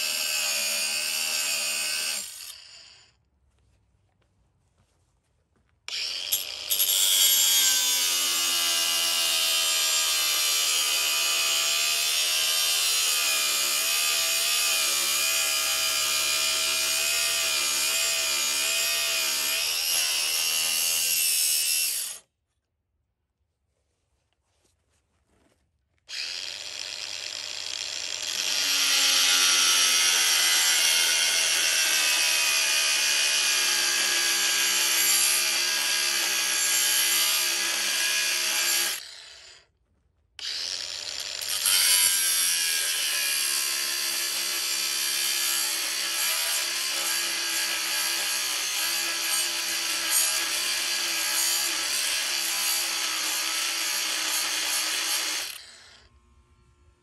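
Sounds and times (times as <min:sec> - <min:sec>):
power tool motor running: 0:05.9 - 0:09.6, 0:26.1 - 0:39.6, 0:40.4 - 0:56.9.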